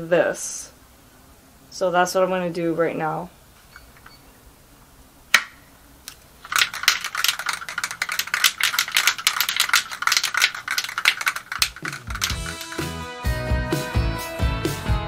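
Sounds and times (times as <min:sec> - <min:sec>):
spray can mixing ball rattling: 0:06.4 - 0:13.0
music: 0:11.8 - 0:15.0.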